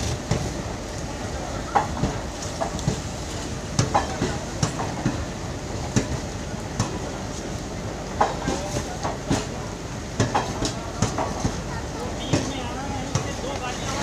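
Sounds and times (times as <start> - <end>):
train rumble: 0.0 - 14.0
train wheels clacking on rail joints: 3.7 - 5.3, 5.9 - 7.2, 8.1 - 9.6, 10.2 - 14.0.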